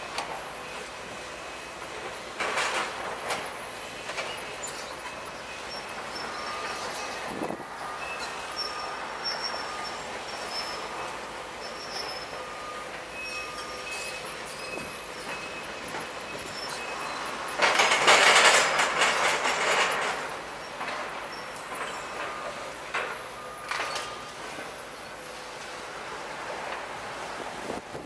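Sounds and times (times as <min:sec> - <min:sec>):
machinery and debris clatter: 0:00.0 - 0:25.1
high metal squeals: 0:04.6 - 0:17.6.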